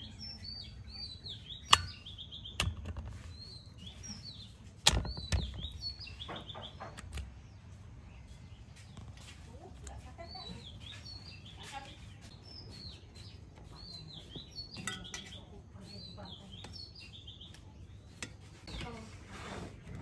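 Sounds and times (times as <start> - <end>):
small birds chirping: 0.0 - 20.0
knocks and clicks on metal: 1.6 - 3.2.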